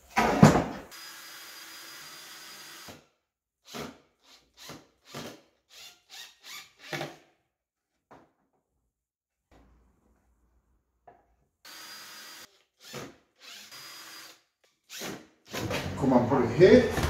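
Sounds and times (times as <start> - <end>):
cordless drill driving screws: 3.7 - 7.2, 11.7 - 15.9.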